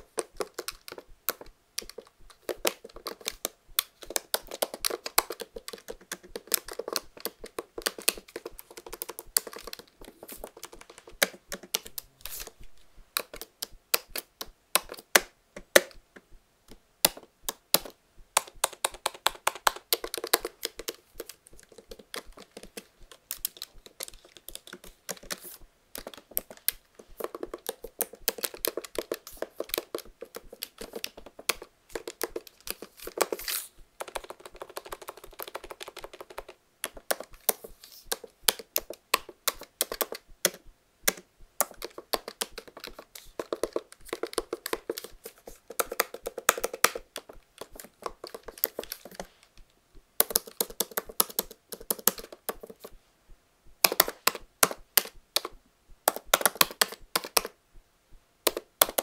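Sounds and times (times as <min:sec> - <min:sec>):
laptop keyboard typing: 0:00.0 - 0:16.0, 0:17.0 - 0:53.0, 0:53.8 - 0:57.6, 0:58.4 - 0:59.0.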